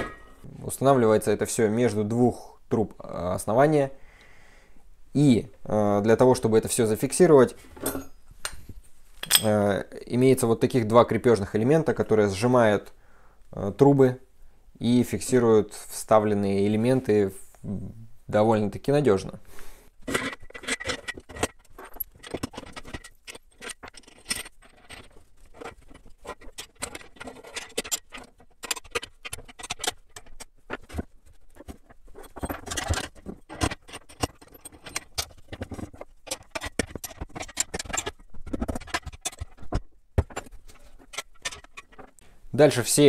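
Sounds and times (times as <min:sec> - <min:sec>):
steel parts clinking and knocking: 0:00.0 - 0:00.4, 0:07.7 - 0:08.6, 0:09.2 - 0:09.6, 0:20.0 - 0:42.2.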